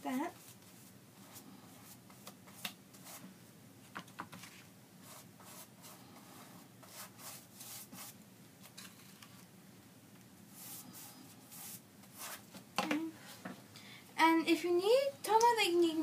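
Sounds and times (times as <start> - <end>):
paintbrush scratching on board: 5.0 - 8.2, 10.5 - 12.4.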